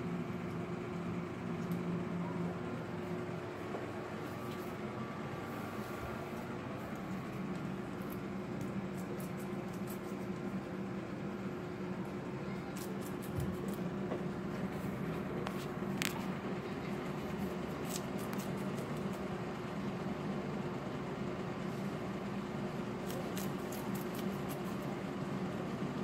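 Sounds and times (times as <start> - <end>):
steady low hum: 0.0 - 26.0
guinea pig chewing: 5.6 - 11.2, 11.9 - 20.7, 21.8 - 25.6.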